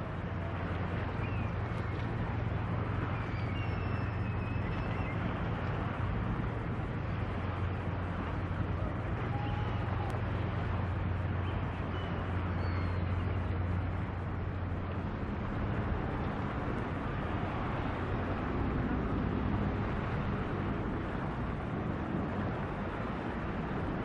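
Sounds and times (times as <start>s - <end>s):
wind on microphone: 0.0s - 24.0s.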